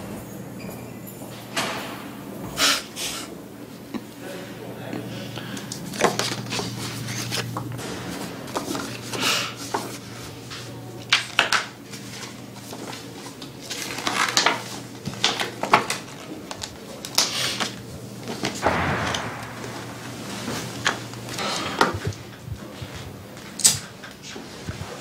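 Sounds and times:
paper rustling and scraping: 5.9s - 18.6s
low hum: 18.6s - 21.4s.

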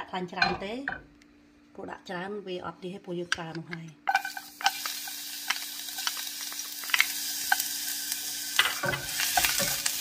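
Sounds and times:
low steady hum: 0.0s - 10.0s
garlic sizzling in hot oil: 4.1s - 10.0s.

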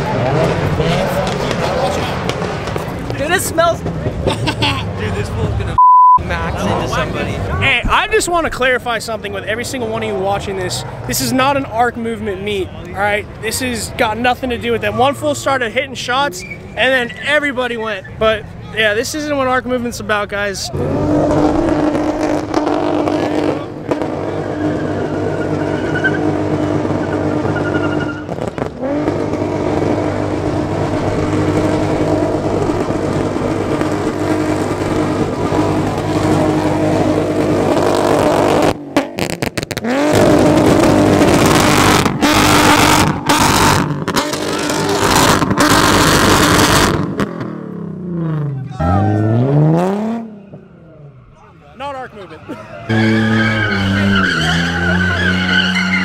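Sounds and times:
car engine at high revs: 0.0s - 4.8s, 20.7s - 51.0s
tire screeching: 0.0s - 56.0s.

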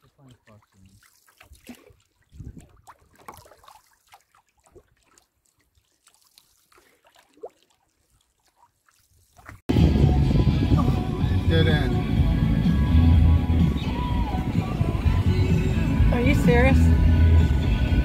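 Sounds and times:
paddle splashing water: 0.0s - 9.7s.

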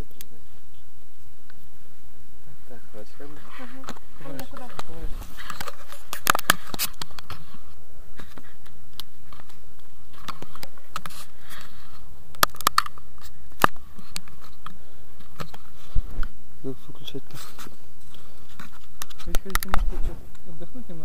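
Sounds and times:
fabric rubbing on camera housing: 3.3s - 12.1s, 17.2s - 20.2s.

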